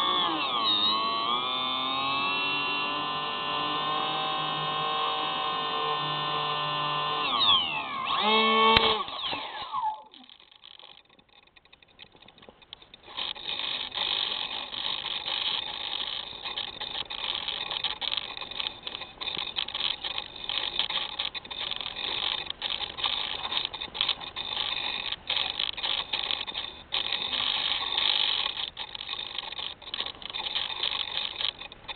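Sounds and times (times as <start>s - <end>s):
rustling and rubbing on microphone: 10.1s - 31.9s.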